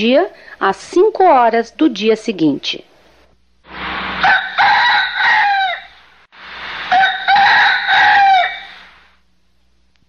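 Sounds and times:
bird crowing: 4.1 - 6.1, 6.8 - 9.0.

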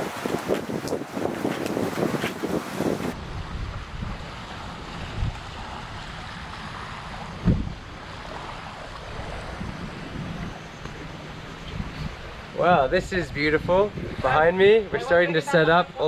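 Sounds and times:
small waves washing on beach: 0.0 - 12.6
wind rumbling on microphone: 0.0 - 16.0.

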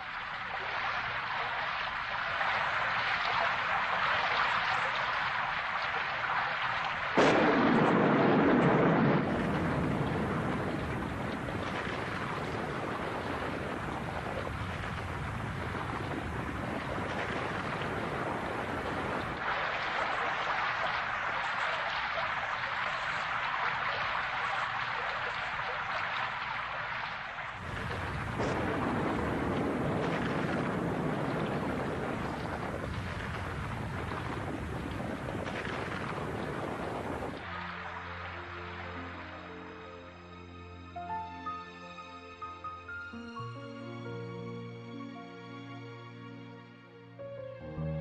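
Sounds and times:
steady rain hiss: 0.0 - 48.0
thunder clap rumbling: 7.1 - 21.8, 27.5 - 37.6.

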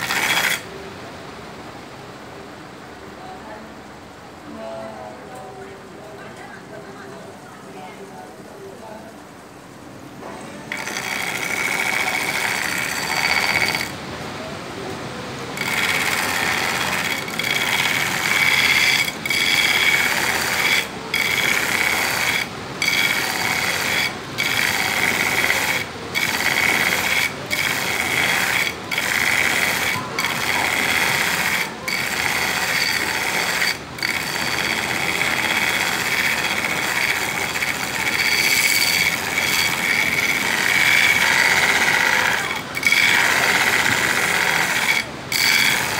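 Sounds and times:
belt grinder grinding steel blade: 0.0 - 0.7, 10.7 - 14.0, 15.6 - 45.9.

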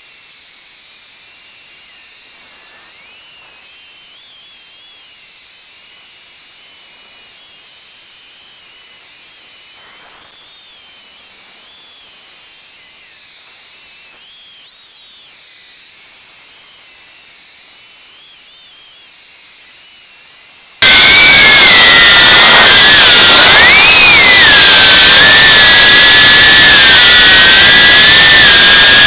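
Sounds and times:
steady hiss: 1.8 - 4.3, 8.7 - 14.4
drone propellers whining: 20.8 - 29.0.

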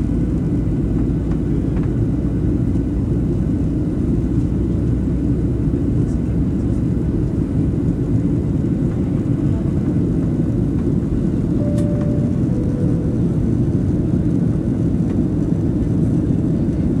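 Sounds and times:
jet engines roaring in cabin: 0.0 - 17.0
short faint tones: 11.6 - 13.4.

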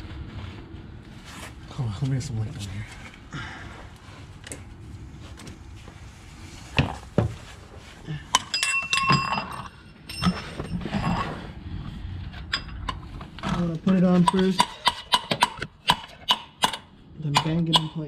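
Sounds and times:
metal hand tools clinking: 8.4 - 10.6.

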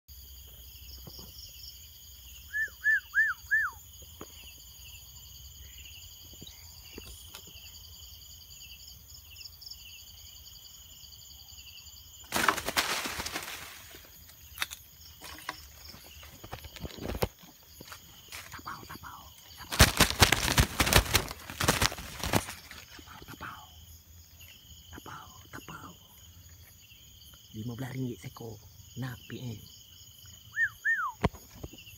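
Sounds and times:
night insects chorus: 0.1 - 31.9
wings flapping: 12.3 - 14.1, 19.6 - 23.0
rustles and clicks: 12.3 - 18.6, 19.6 - 23.0
rustling palm fronds: 12.3 - 18.6, 19.6 - 23.0.

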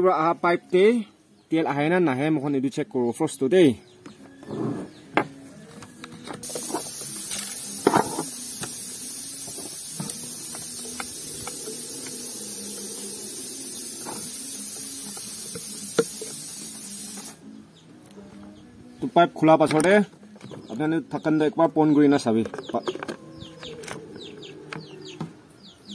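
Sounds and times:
steady high hiss: 6.4 - 17.5
handling clicks and knocks: 22.2 - 24.1.

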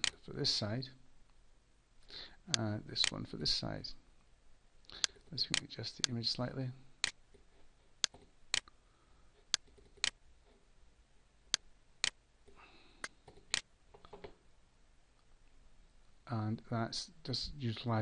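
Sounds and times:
computer mouse clicking: 8.0 - 8.7.

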